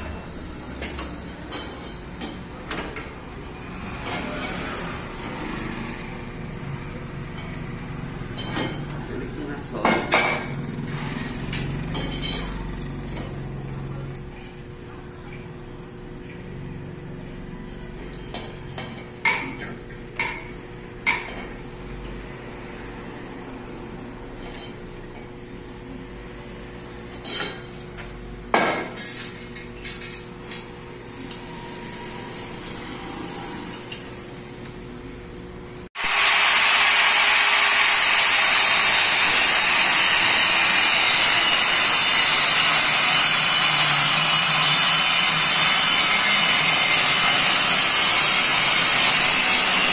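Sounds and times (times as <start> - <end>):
angle grinder grinding metal: 36.0 - 49.9.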